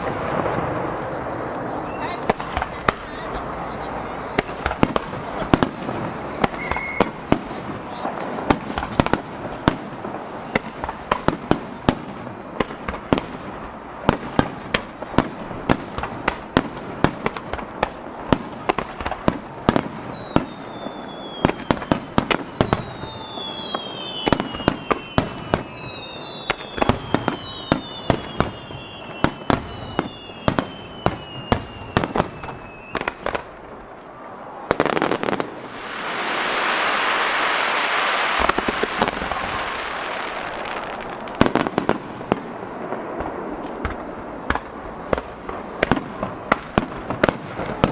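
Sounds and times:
fireworks bangs and pops: 0:00.0 - 0:47.9
falling firework whistles: 0:01.7 - 0:13.4, 0:18.6 - 0:42.1.

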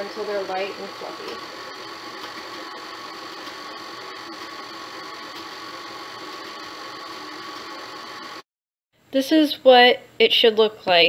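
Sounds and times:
stand mixer motor running: 0:00.0 - 0:08.4.

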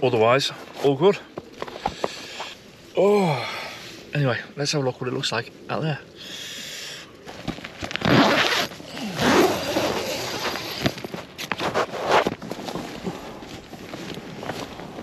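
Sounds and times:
tent fabric rustling: 0:07.2 - 0:15.0
tent zip rasping: 0:07.3 - 0:15.0.

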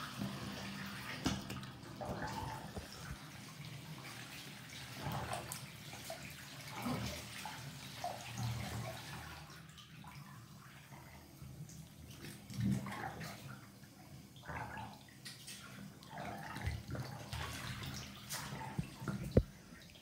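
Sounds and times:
water sloshing in bathtub: 0:00.0 - 0:20.0.

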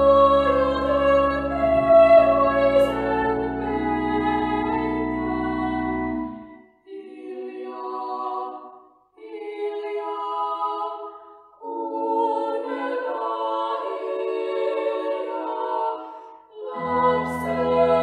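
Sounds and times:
women singing unaccompanied: 0:00.0 - 0:05.9, 0:06.9 - 0:18.0
low instrumental accompaniment: 0:00.0 - 0:06.6.

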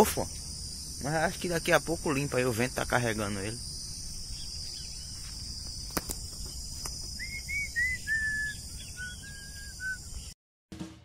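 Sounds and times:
crickets chirping: 0:00.0 - 0:10.4
bird whistling: 0:07.1 - 0:10.3.

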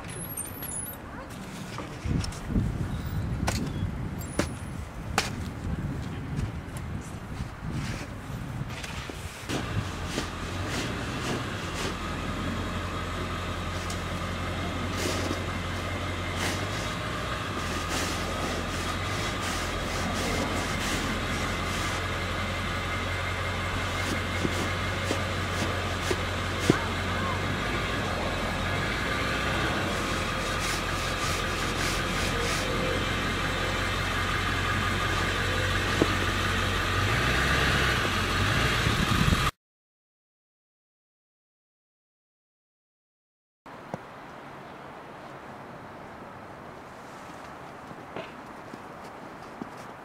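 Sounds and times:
diesel engine running: 0:09.5 - 0:39.5.

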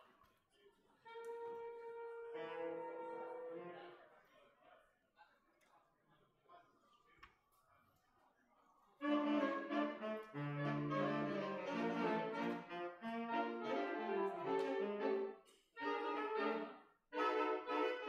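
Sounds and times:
saxophone quartet playing: 0:01.0 - 0:04.0, 0:09.0 - 0:18.0.

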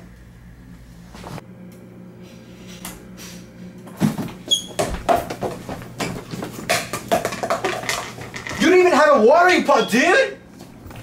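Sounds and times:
knocks and clatters of household things: 0:03.9 - 0:08.9
high squeak: 0:04.5 - 0:04.8.

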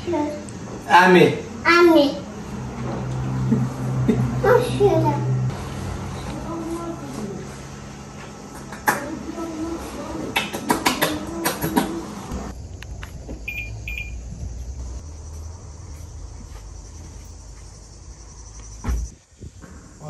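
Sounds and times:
crickets chirring: 0:05.5 - 0:10.4, 0:12.3 - 0:20.0.

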